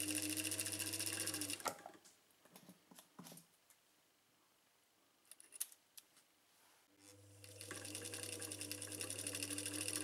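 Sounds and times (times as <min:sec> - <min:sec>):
sewing machine winding bobbin: 0:00.0 - 0:01.7, 0:07.0 - 0:10.0.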